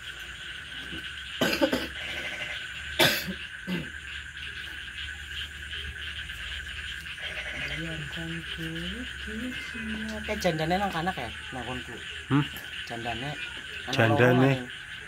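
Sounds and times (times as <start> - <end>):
person coughing: 1.4 - 1.9, 3.0 - 3.9.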